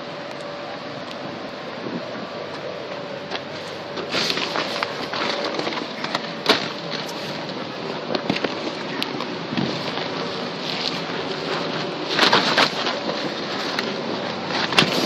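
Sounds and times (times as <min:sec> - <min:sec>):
air blower humming: 0:00.0 - 0:15.0
vinyl crinkling: 0:03.3 - 0:15.0.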